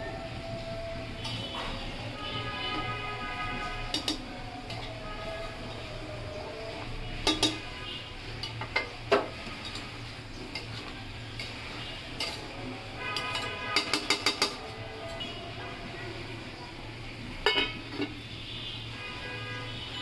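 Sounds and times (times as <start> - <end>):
metal spatula knocking on pot: 13.2 - 14.6.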